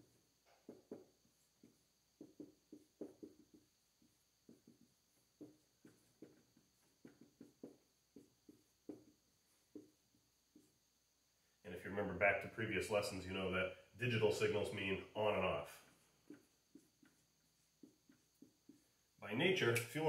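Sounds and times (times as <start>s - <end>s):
marker writing on whiteboard: 0.0s - 10.9s, 15.3s - 19.1s.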